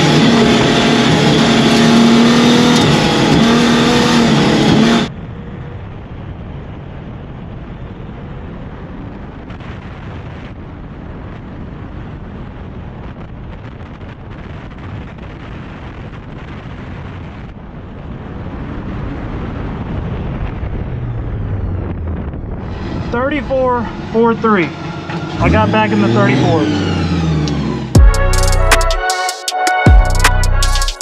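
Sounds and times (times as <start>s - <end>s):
wind rushing over camera: 0.0s - 25.9s
muffled car engine and tyres: 0.0s - 28.9s.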